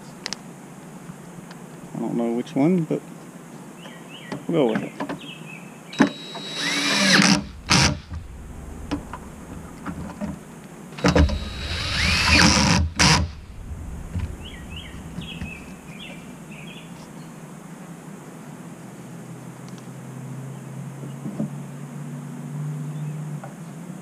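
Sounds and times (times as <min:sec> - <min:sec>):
cordless drill driving a fastener: 0:06.0 - 0:08.0, 0:11.0 - 0:13.3.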